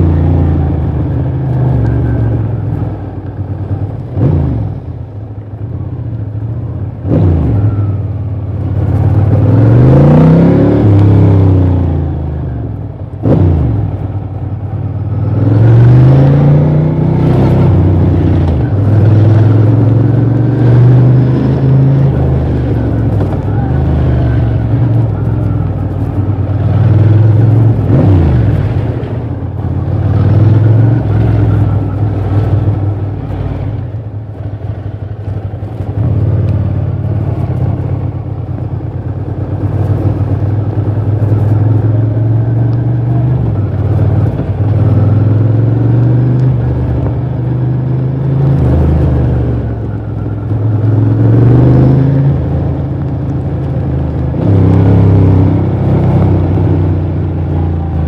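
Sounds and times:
motorcycle engine revving: 15.0s - 58.0s.

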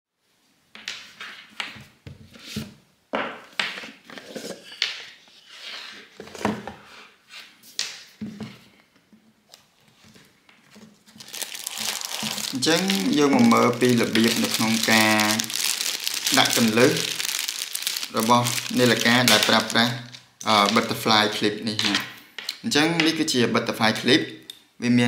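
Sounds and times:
plastic wrapping crinkling: 10.6s - 22.1s.

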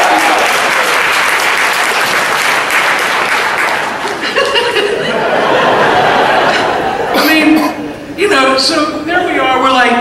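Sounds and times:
audience applauding: 0.0s - 5.0s
voices calling out: 7.1s - 8.1s.

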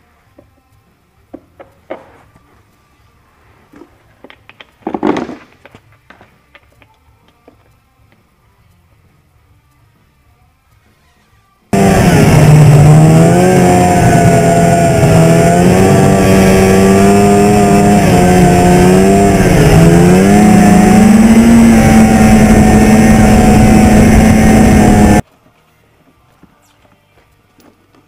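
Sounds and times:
snowmobile engine running: 11.8s - 25.2s.

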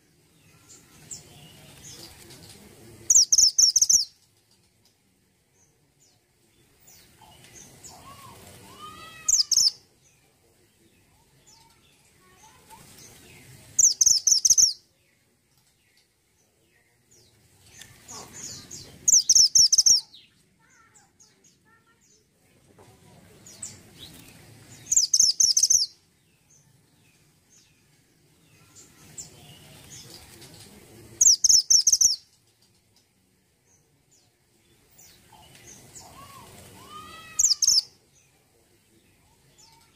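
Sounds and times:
bird rapid high-pitched chirps: 3.1s - 4.2s, 9.2s - 9.8s, 13.8s - 14.8s, 18.1s - 20.3s, 24.8s - 26.0s, 31.2s - 32.5s, 37.0s - 37.9s
wings rustling on perch: 7.4s - 9.6s, 35.5s - 37.6s.

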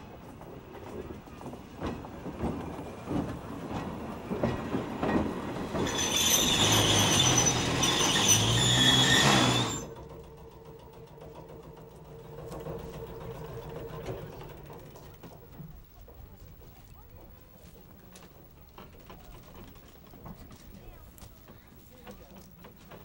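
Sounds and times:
train wheels clicking over joints: 0.0s - 23.0s
train wheels squealing: 4.4s - 14.6s.

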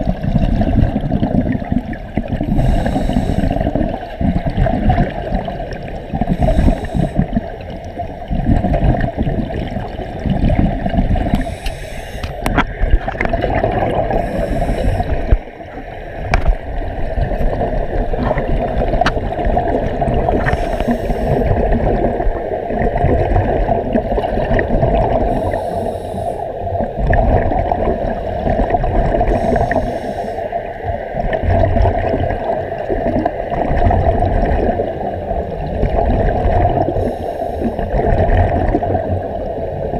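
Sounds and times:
bubbles gurgling underwater: 0.0s - 39.9s
muffled underwater rumble: 0.0s - 39.9s
regulator hissing: 11.3s - 12.4s.

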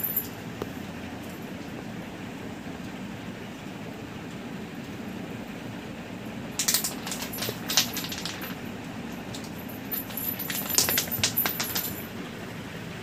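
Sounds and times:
low background hum: 0.0s - 13.0s
ball clicking on concrete floor: 6.6s - 8.6s.

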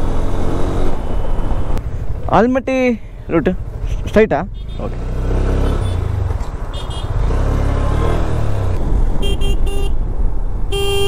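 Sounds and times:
road and wind noise: 0.0s - 11.0s
vehicle horn toots: 4.6s - 4.9s, 6.7s - 7.1s, 9.2s - 10.0s, 10.7s - 11.0s.

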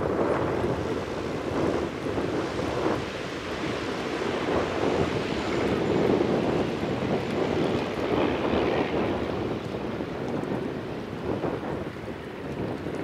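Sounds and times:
light aircraft engine running: 0.0s - 13.0s
wind buffeting microphone: 0.0s - 13.0s.

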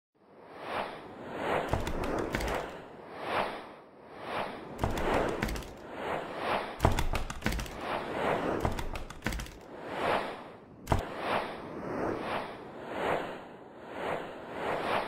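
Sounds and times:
whooshes: 0.4s - 15.0s
sharp clicks: 1.7s - 2.8s, 4.8s - 5.8s, 6.8s - 7.9s, 8.6s - 9.7s, 10.9s - 11.1s.

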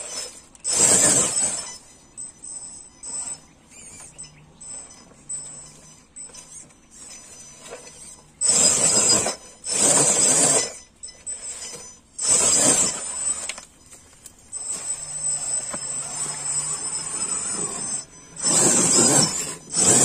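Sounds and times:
rc car motor: 0.0s - 13.7s, 14.5s - 20.0s
thin high whine: 0.0s - 20.0s.

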